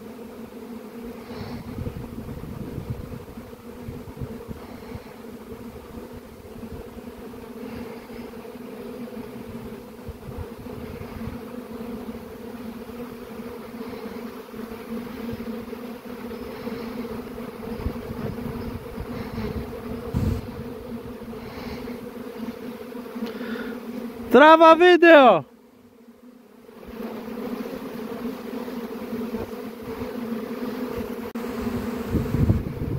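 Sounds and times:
bees buzzing: 0.0 - 32.9
brief thump: 20.1 - 20.5.

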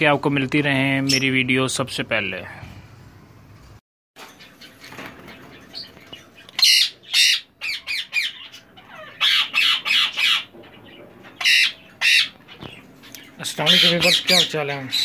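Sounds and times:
parakeets squawking: 4.4 - 15.0.

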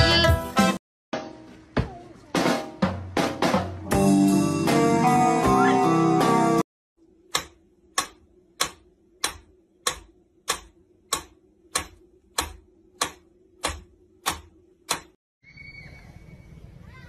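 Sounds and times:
drum music: 0.0 - 6.6
metronome ticking: 7.3 - 15.2.

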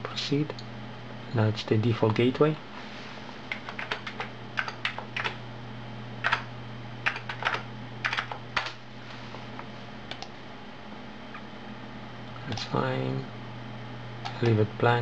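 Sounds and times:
keyboard typing clicks: 3.5 - 5.4, 6.2 - 8.8.

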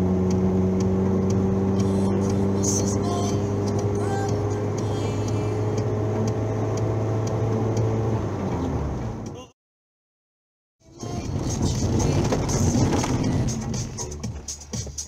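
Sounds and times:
car engine drone: 0.0 - 9.5, 10.8 - 15.0
tyre and road noise: 0.0 - 9.5, 10.8 - 15.0.

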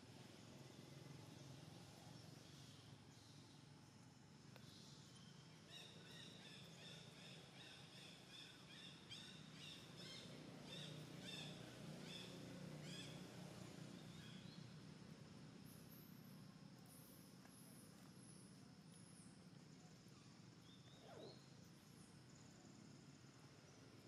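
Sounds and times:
low background hum: 0.0 - 24.0
bird chirping: 4.6 - 14.7, 19.9 - 21.6.

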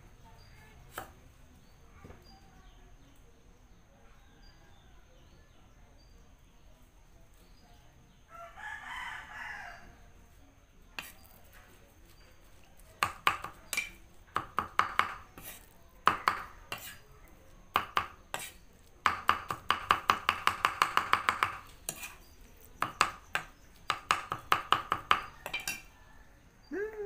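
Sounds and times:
cleaver chopping on wooden block: 0.9 - 1.2, 13.0 - 17.0, 17.7 - 25.8.

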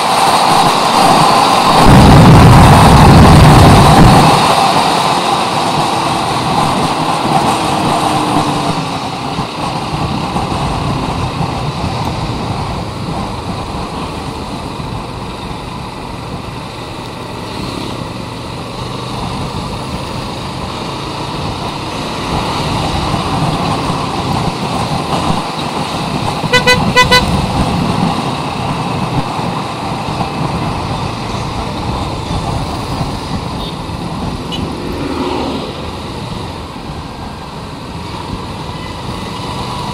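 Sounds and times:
road noise: 0.0 - 39.9
motorcycle engine: 1.4 - 28.6
vehicle horn short beeps: 26.5 - 27.3.

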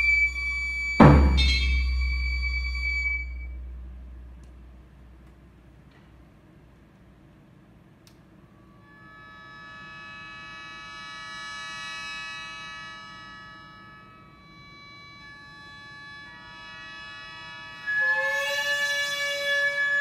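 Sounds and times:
double-reed held note: 0.0 - 5.1.

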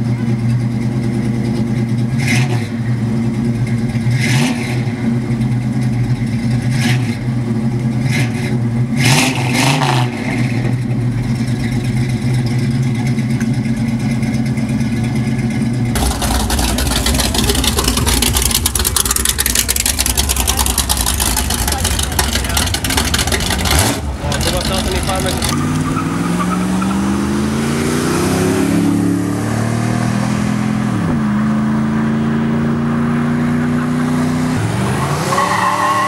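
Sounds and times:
car engine idling with revs: 0.0 - 26.0
rough pickup engine idling: 5.0 - 9.0, 10.6 - 25.6.

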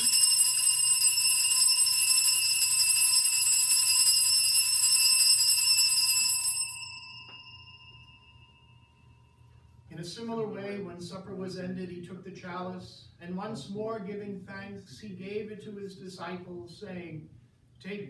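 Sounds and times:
altar bells jangling: 0.0 - 9.1.

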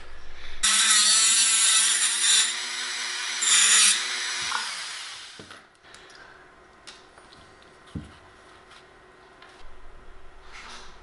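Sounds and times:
rotary tool grinding metal: 0.6 - 5.2.

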